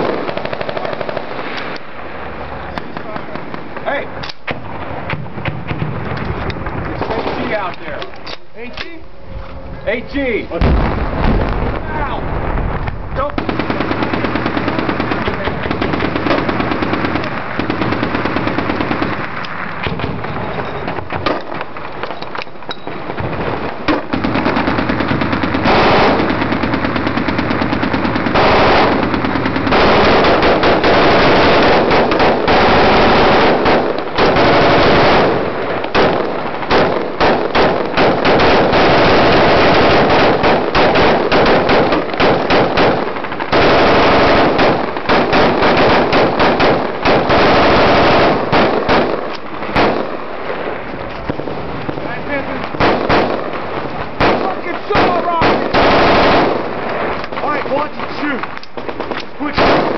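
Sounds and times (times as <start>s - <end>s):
automatic weapons fire: 0.0s - 1.5s, 13.2s - 21.8s, 23.0s - 50.2s, 51.2s - 59.9s.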